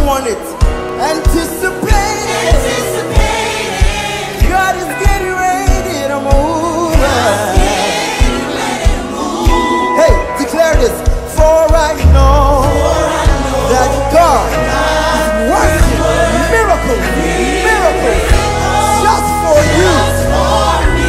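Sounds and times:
lead and backing singers: 0.0 - 21.0
drum kit beat: 0.6 - 21.0
electric bass guitar: 11.9 - 21.0.

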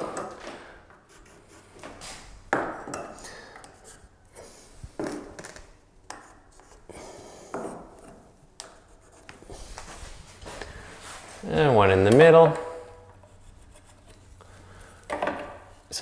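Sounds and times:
pencil marking on wood: 1.0 - 1.9, 6.1 - 9.6, 13.2 - 14.2.

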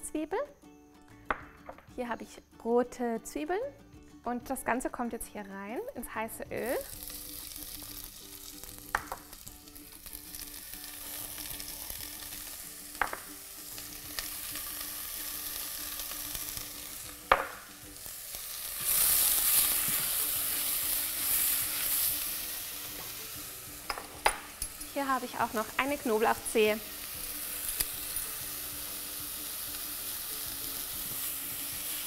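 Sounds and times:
onions sizzling in hot oil: 6.0 - 32.0.

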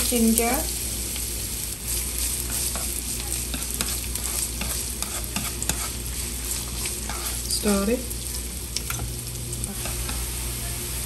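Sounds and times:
ginger sizzling in hot oil: 0.0 - 11.0
chopsticks clicking against pan: 8.7 - 9.1.

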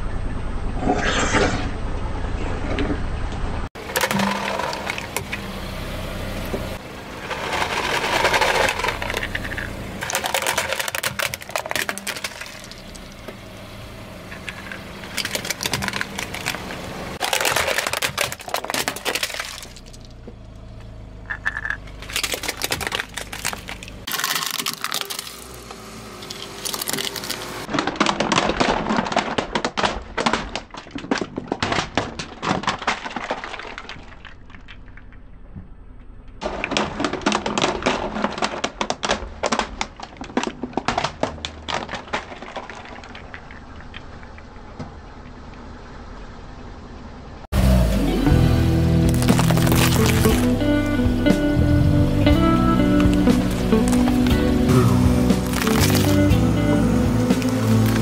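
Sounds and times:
plastic toy cracking under tyre: 7.3 - 13.1, 14.4 - 20.1, 21.3 - 35.4, 36.4 - 44.5, 49.1 - 50.6, 53.0 - 54.4, 55.3 - 56.3.

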